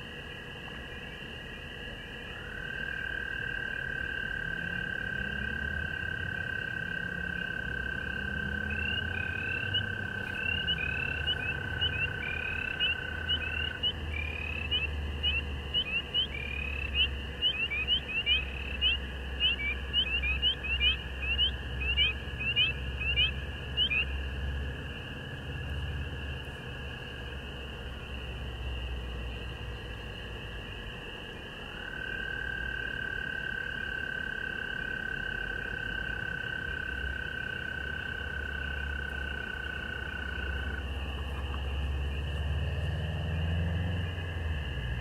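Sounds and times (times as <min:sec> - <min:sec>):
frog chorus: 0:00.0 - 0:45.0
long steady frog call: 0:00.0 - 0:45.0
frog rising peeps: 0:07.2 - 0:24.1.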